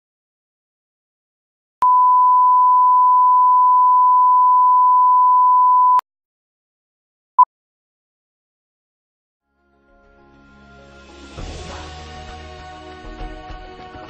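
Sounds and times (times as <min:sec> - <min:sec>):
short sync beep: 0:01.8 - 0:06.0.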